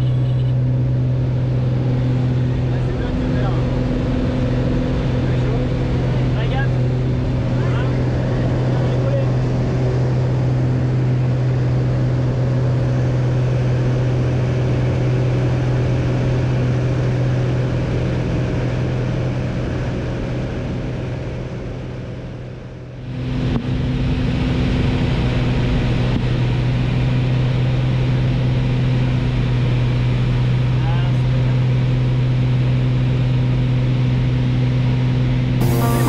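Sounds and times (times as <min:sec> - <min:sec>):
light aircraft engine droning: 0:00.0 - 0:36.0.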